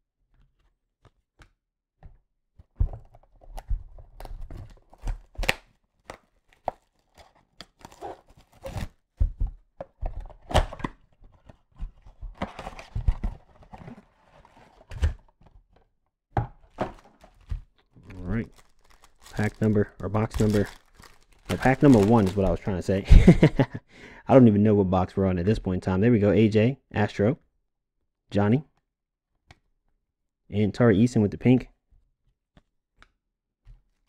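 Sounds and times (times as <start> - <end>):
packaging torn and crinkled: 16.9 - 22.6.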